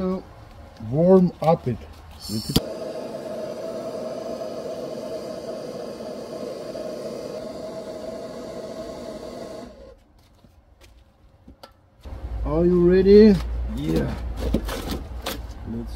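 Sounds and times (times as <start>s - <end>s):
heating tool hissing: 2.2s - 10.0s.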